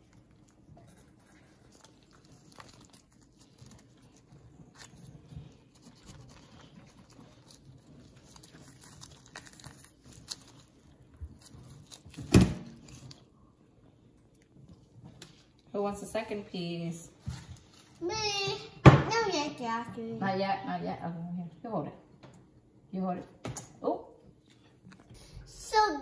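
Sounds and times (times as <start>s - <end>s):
fruit flesh tearing: 0.0s - 15.7s.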